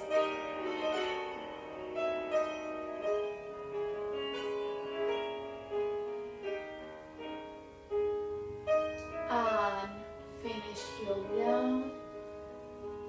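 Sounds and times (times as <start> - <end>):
classical piano accompaniment: 0.0 - 13.0.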